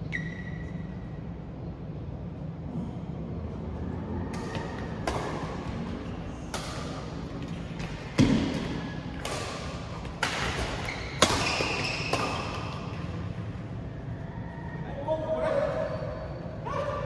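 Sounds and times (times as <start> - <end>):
rackets striking shuttlecock: 4.3 - 13.4.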